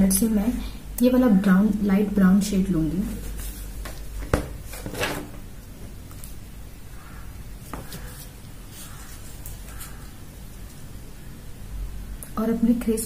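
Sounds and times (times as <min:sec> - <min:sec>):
faint rustling of handling: 0:07.6 - 0:10.9.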